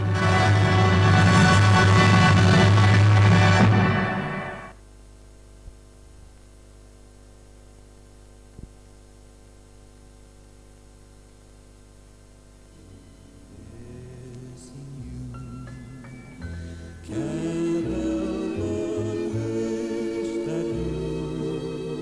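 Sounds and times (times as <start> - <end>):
low electrical hum: 4.5 - 22.0.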